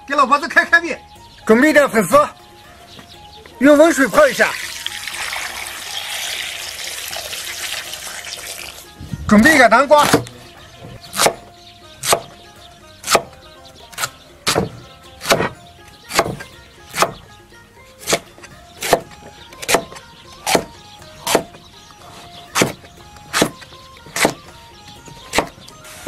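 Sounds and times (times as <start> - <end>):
cleaver knocking on chopping board: 10.0 - 10.3, 10.9 - 11.4, 12.0 - 12.4, 14.0 - 17.2, 18.0 - 21.6.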